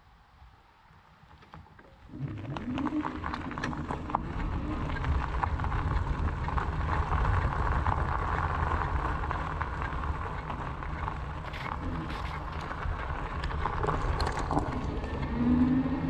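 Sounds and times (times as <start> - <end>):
wind and tyre rumble: 2.0 - 16.0
bike clicks and rattles: 3.3 - 15.2.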